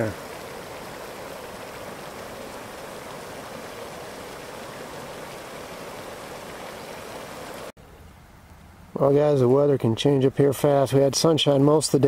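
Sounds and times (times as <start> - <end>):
hot spring bubbling: 0.0 - 7.8.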